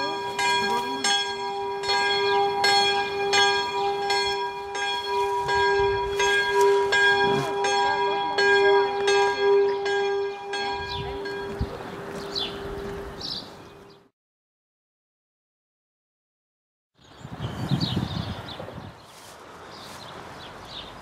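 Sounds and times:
church bell ringing: 0:00.0 - 0:14.1.

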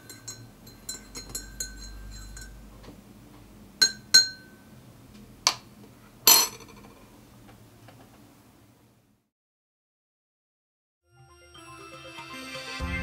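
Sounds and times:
spoon stirring in ceramic mug: 0:00.0 - 0:02.6.

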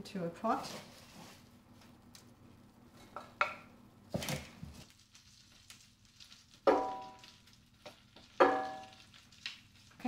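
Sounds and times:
spatula knocking on metal pot: 0:06.7 - 0:07.2, 0:08.4 - 0:08.9
metal pot ringing: 0:08.4 - 0:09.0.

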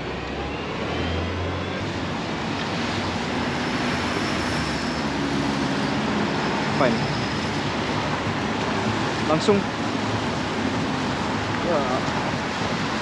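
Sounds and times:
passing vehicle engines: 0:00.0 - 0:13.0
tyres hissing on wet road: 0:02.1 - 0:13.0.

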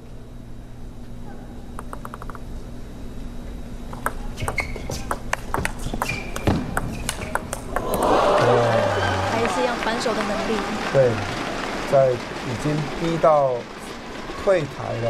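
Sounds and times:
table tennis ball clicking: 0:01.8 - 0:02.4, 0:03.9 - 0:08.0
shoe squeaks on floor: 0:04.4 - 0:05.2, 0:05.8 - 0:07.4.

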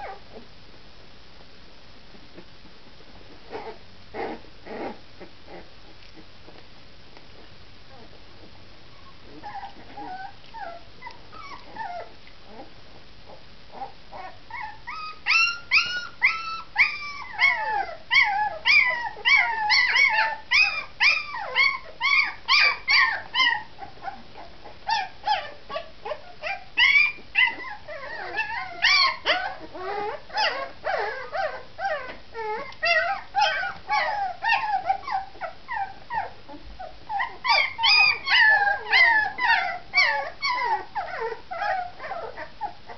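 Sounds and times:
puppies whining and crying: 0:08.9 - 0:42.9.

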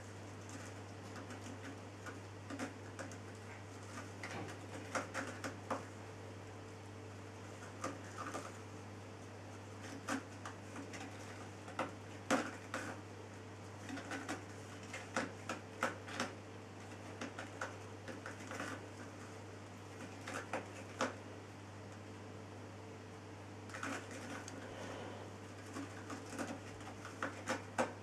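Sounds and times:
kittens clicking and rustling: 0:00.3 - 0:06.0, 0:07.5 - 0:08.7, 0:09.8 - 0:13.0, 0:13.8 - 0:21.2, 0:23.7 - 0:24.7, 0:25.5 - 0:28.0
steady low hum: 0:18.8 - 0:27.1.

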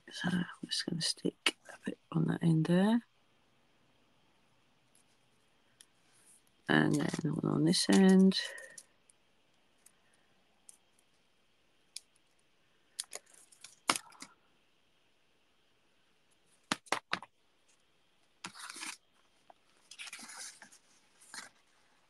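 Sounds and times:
clicks and taps handling craft items: 0:06.8 - 0:08.8, 0:16.6 - 0:17.3.

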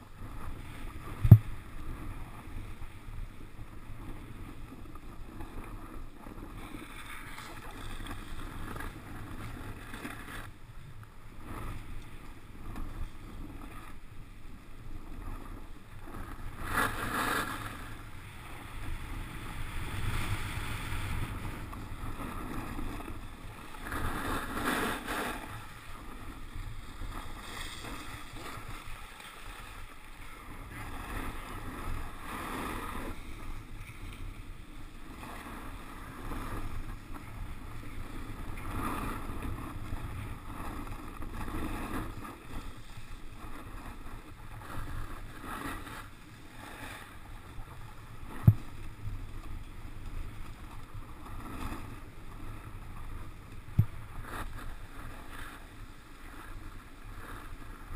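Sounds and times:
wind buffeting microphone: 0:00.0 - 0:10.6
snowboard scraping over snow: 0:00.0 - 0:57.9.

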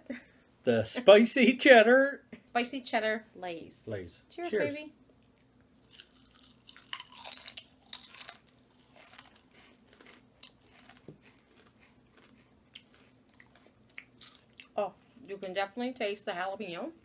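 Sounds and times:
people crunching potato chips: 0:05.8 - 0:14.8.

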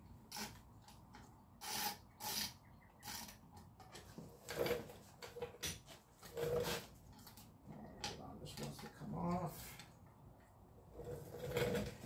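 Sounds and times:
ratchet rasping: 0:01.6 - 0:03.4.

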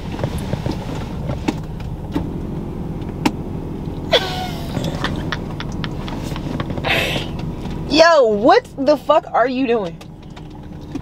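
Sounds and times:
car cabin rumble: 0:00.0 - 0:11.0
clicks and shuffling: 0:04.8 - 0:07.8.

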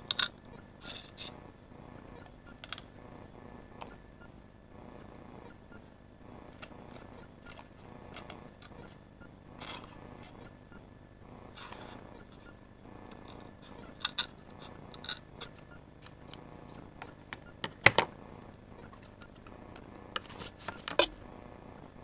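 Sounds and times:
knife cutting and scraping wood: 0:00.1 - 0:01.4.

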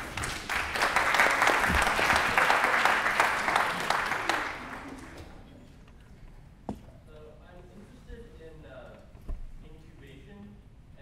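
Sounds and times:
audience applauding: 0:00.0 - 0:05.4.

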